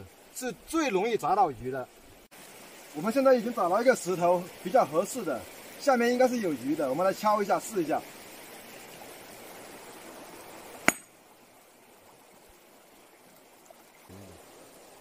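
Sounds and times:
flowing water rushing: 0.0 - 15.0
sledgehammer striking rock: 10.9 - 11.1.

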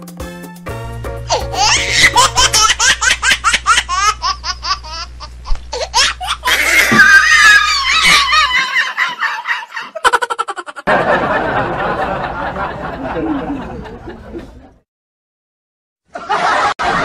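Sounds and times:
background music: 0.0 - 2.6
steady low hum: 1.0 - 6.9
high-pitched laughter: 1.3 - 5.1, 5.8 - 10.9.

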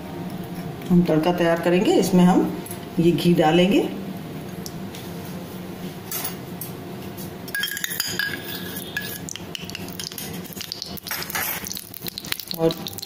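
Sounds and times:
steady low hum: 0.0 - 13.0
kitchen utensils clinking: 7.5 - 11.8.

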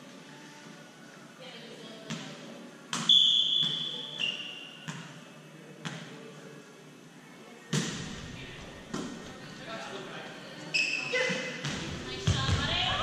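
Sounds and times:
referee's whistle blast: 3.1 - 4.6.

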